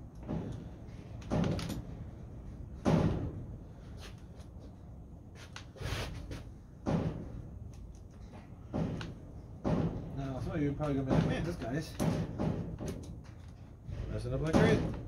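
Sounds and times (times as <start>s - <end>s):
dull clunks and knocks: 0.2s - 0.7s, 6.8s - 7.4s, 8.3s - 15.0s.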